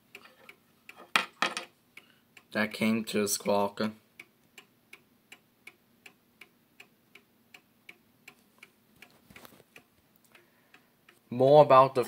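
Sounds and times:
mantle clock ticking: 0.0s - 1.0s, 1.9s - 12.0s
soft rustle: 8.4s - 9.8s.

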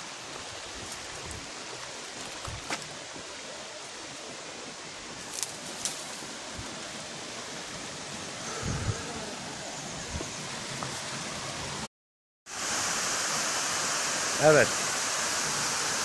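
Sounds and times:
stream running over boulders: 0.0s - 11.9s, 12.5s - 16.0s
waterfall rushing: 6.2s - 11.9s, 12.5s - 16.0s.

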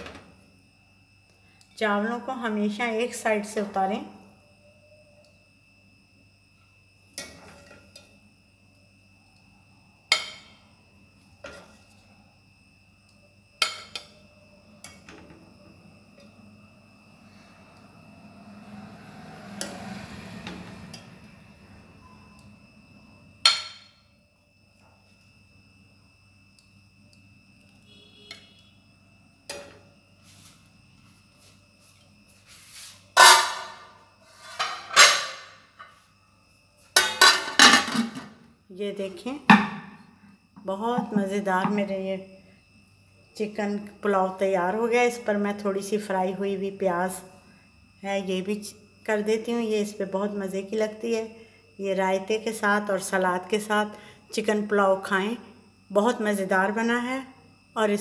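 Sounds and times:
metal kitchenware clattering: 33.2s - 33.8s, 34.4s - 35.5s, 37.0s - 38.2s.

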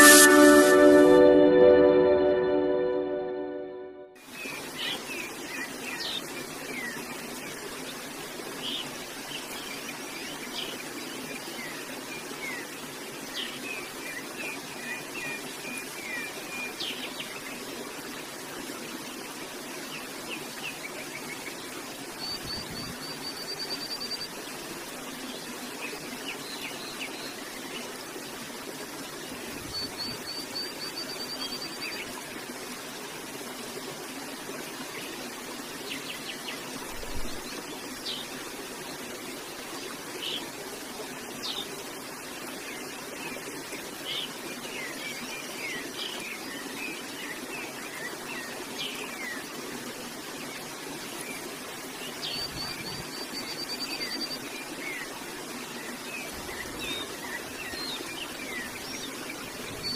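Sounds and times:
stream flowing: 0.0s - 59.9s
songbirds chirping: 50.2s - 59.9s.

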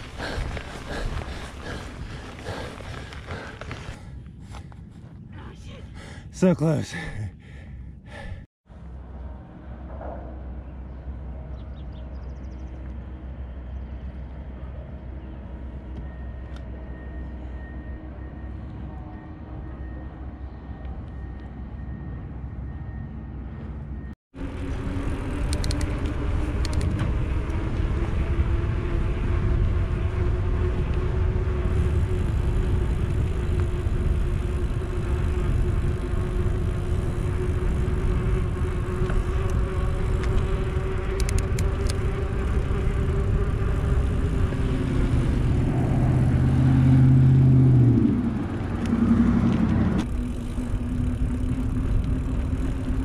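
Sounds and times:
bike tyre noise: 0.0s - 5.2s, 24.4s - 53.0s
steady low hum: 0.0s - 53.0s
loud low hum dropping in pitch: 24.4s - 53.0s.

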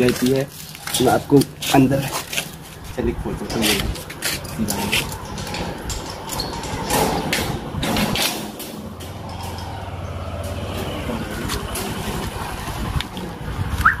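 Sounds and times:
rough scuffing noises: 0.0s - 5.2s
low engine hum: 2.3s - 14.0s.

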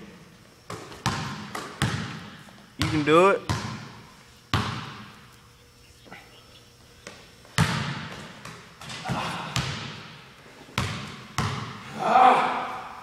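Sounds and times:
basketball bouncing on gym floor: 0.7s - 5.2s, 7.0s - 11.9s.

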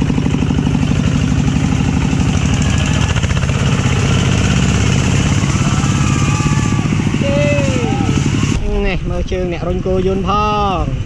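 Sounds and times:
small motorbike engine running: 0.0s - 8.7s.

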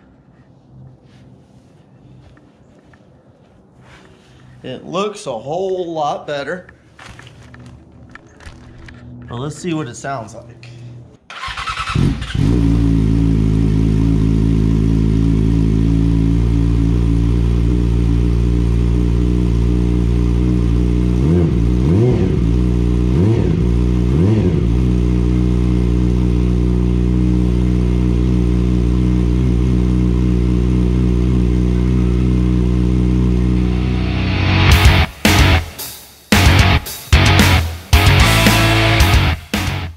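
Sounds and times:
motorcycle engine starting: 10.9s - 35.6s
motorcycle engine revving: 11.3s - 35.6s
motorcycle engine idling: 12.5s - 33.8s.

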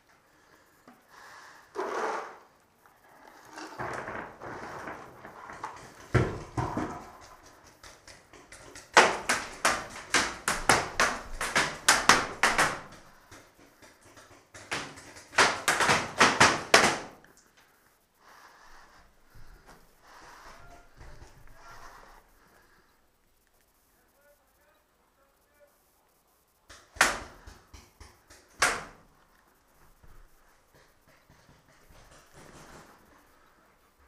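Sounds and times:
paintballs smacking into walls: 3.6s - 17.6s, 19.3s - 22.7s, 26.6s - 29.2s, 29.8s - 33.4s.

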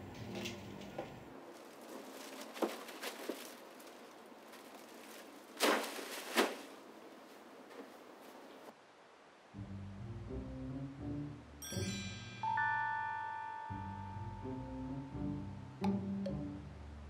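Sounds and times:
plastic bag rustling: 1.4s - 8.7s.

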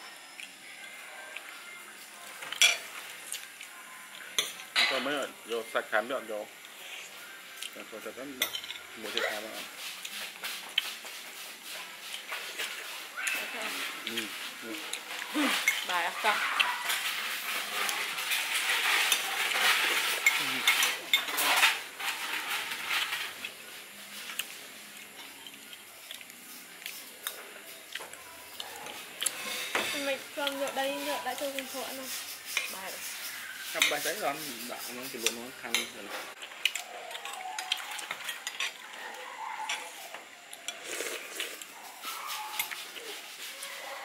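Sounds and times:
food sizzling: 0.0s - 44.0s
utensil scraping frying pan: 9.3s - 24.6s, 29.0s - 36.4s.

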